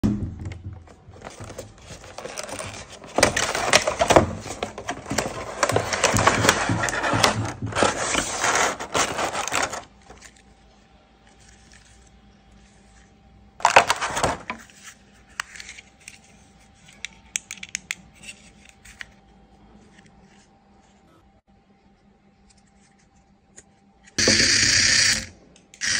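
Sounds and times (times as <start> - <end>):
plastic packaging crinkling: 1.1 - 17.1.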